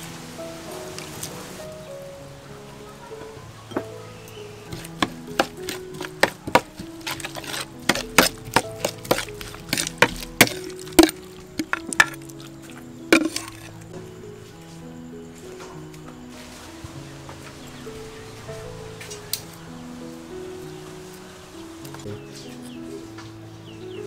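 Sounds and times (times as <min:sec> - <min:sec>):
soft background music: 0:00.0 - 0:24.0
metal spoon clinking in bowl: 0:04.7 - 0:12.3.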